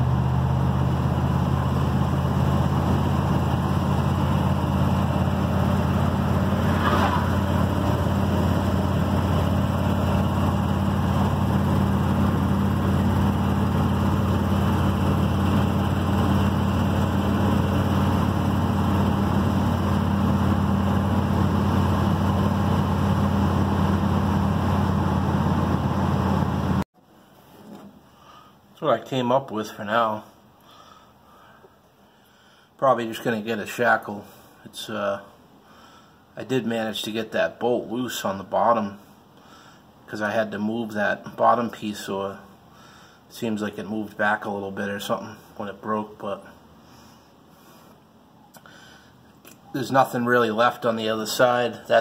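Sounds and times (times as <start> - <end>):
road and wind noise: 0.0 - 26.8
truck engine droning: 0.0 - 26.8.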